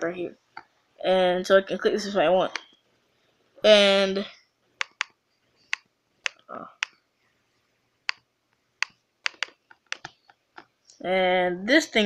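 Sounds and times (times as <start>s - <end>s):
touchpad clicks: 4.8s - 7.0s, 8.8s - 10.7s.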